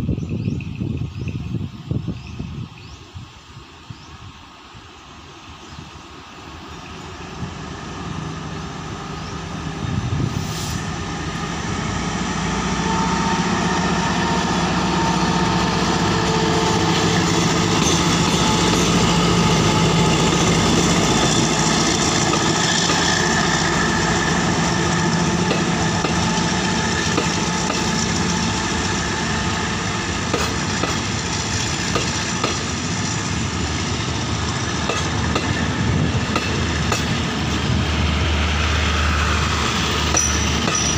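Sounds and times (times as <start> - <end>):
train coaches rumbling: 0.0 - 40.9
locomotive engine passing: 6.2 - 40.9
wheels clicking over rail joints: 39.7 - 40.9.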